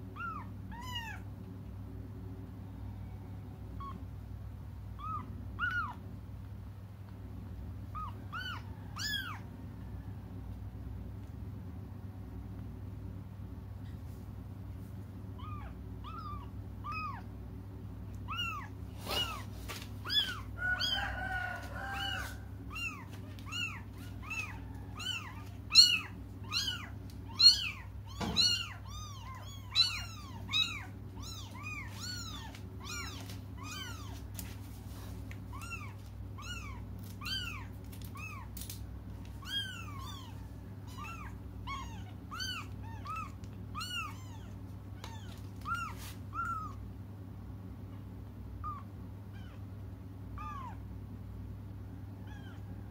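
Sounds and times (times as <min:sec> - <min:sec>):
steady low hum: 0:00.0 - 0:52.9
kittens mewing: 0:05.0 - 0:06.1, 0:07.8 - 0:09.5, 0:15.3 - 0:17.4, 0:18.2 - 0:34.4, 0:35.4 - 0:46.9, 0:47.9 - 0:49.7, 0:50.3 - 0:51.0, 0:52.2 - 0:52.7.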